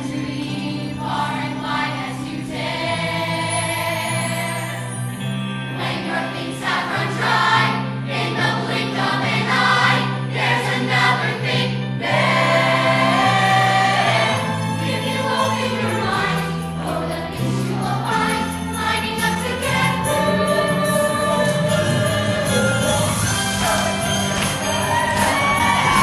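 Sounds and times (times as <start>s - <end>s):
large chorus singing: 0.0s - 5.0s, 5.7s - 26.0s.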